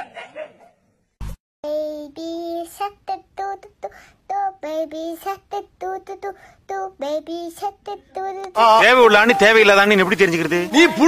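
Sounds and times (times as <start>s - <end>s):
high child-like voice singing: 1.6s - 9.5s.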